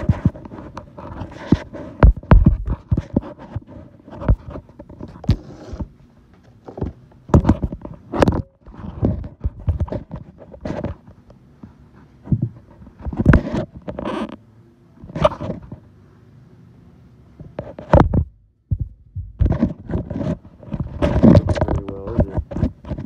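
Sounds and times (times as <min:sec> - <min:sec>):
scrape on workbench: 0:05.2 - 0:05.9.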